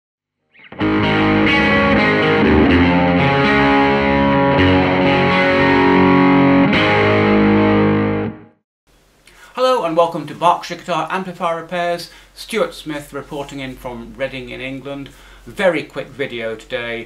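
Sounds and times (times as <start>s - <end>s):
distorted electric guitar chords: 0.6s - 8.6s.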